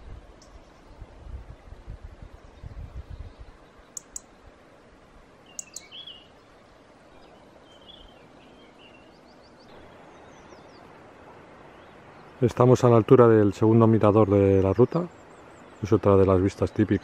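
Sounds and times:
small birds chirping: 2.3 - 4.4, 5.4 - 12.8, 13.7 - 17.0.

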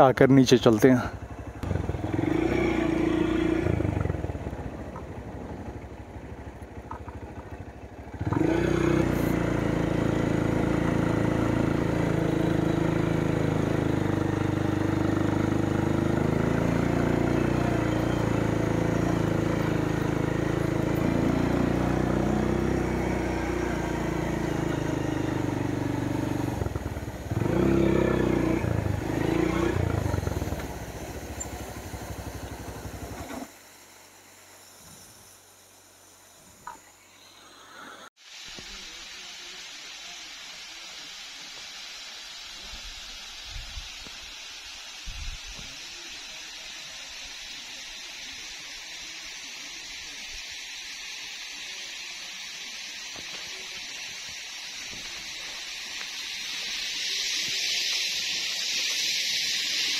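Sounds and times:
motorcycle engine: 0.0 - 37.4.

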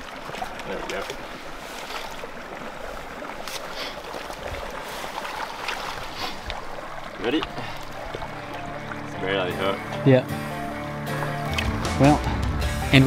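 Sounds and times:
creek water flowing: 0.0 - 13.0
hands splashing in water: 11.1 - 12.0.

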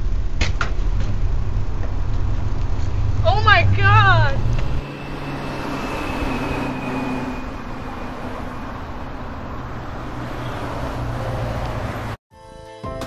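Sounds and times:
car engine running: 0.0 - 5.3.

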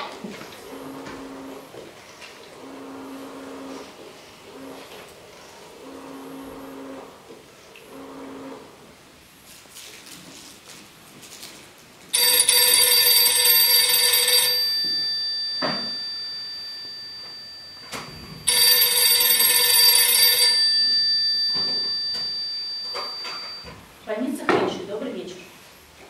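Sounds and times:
telephone bell ringing: 12.1 - 23.8.

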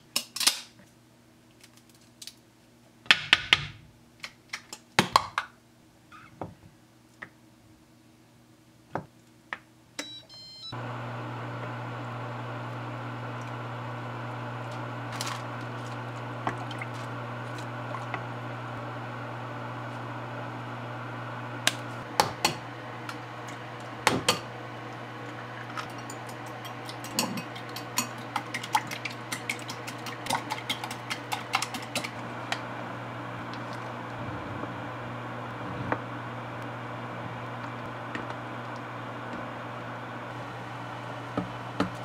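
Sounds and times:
steady low hum: 13.9 - 42.0.

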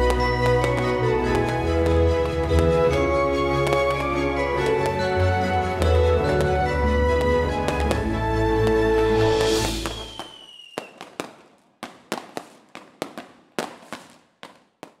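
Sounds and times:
background music: 0.0 - 10.3
distant fireworks bangs: 0.0 - 15.0
falling whistle: 9.1 - 11.0.

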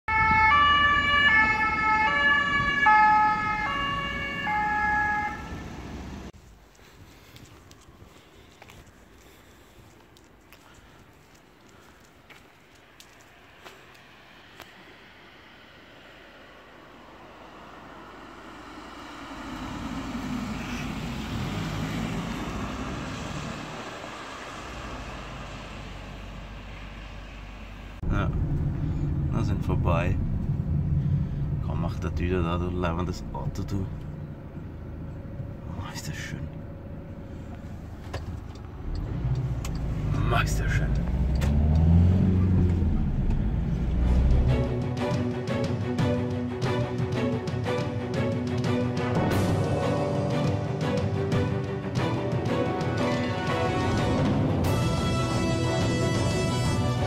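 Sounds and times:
two-tone siren: 0.1 - 6.0
car driving past on wet road: 13.3 - 31.7, 38.7 - 44.8.

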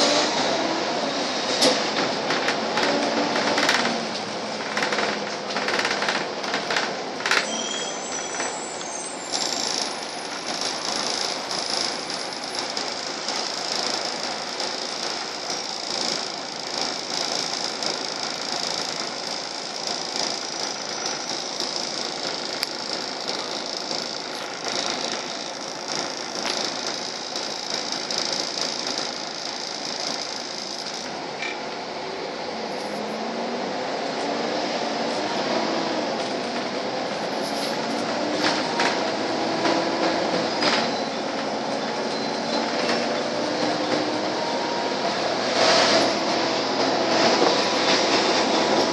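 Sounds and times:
bus running rumble and hiss: 0.0 - 48.9
bus fittings rattling: 4.6 - 7.5
sharp clicks: 9.3 - 31.6.

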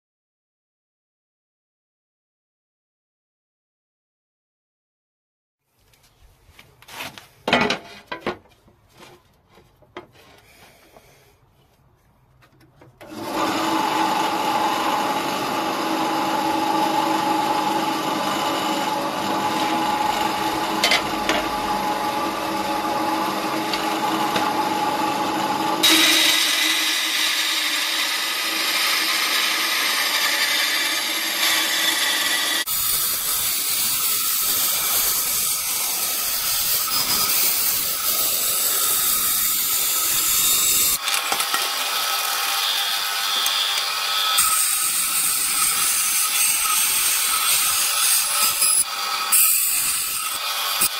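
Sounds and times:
bandsaw cutting metal plate: 13.0 - 50.9.

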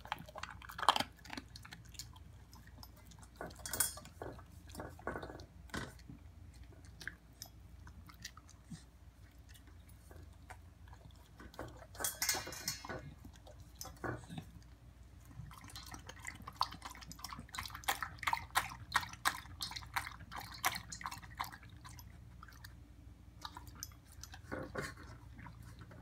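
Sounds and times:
dog licking a metal bowl: 0.0 - 26.0.

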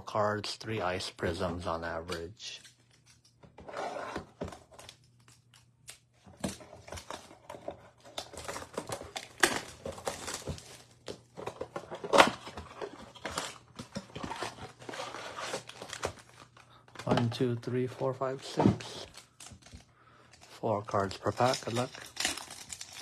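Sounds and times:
cardboard clicks and rustles: 6.2 - 17.6
plastic wrap crinkling and tearing: 8.0 - 11.2, 19.0 - 23.0.

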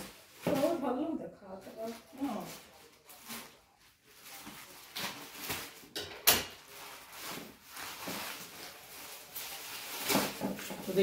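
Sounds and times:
package scraping and rustling: 6.6 - 11.0.

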